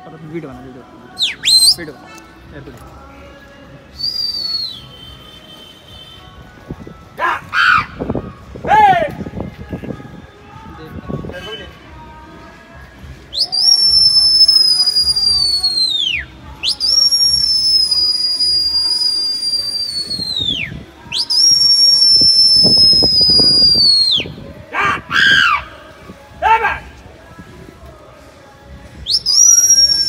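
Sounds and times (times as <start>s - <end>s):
person whistling: 1.2s - 1.8s, 4.0s - 5.8s, 13.4s - 24.3s, 29.1s - 30.0s
short high calls: 29.1s - 30.0s.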